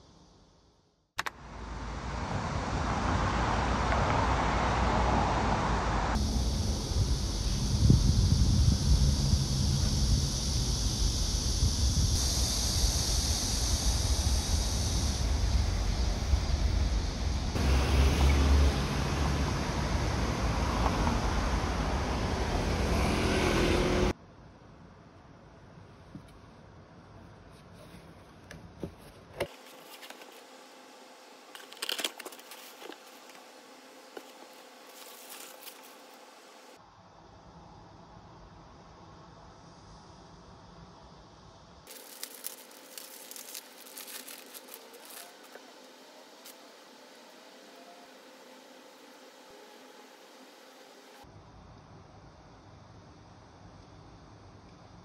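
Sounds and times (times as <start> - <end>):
distant road traffic: 1.2 - 7.8, 14.7 - 24.4, 41.9 - 51.3
wind rumbling on microphone: 2.3 - 17.6
steady high hiss: 6.1 - 22.0, 29.5 - 55.0
tissue paper crinkling: 29.5 - 30.4, 31.5 - 33.4, 34.2 - 36.2, 41.9 - 45.6.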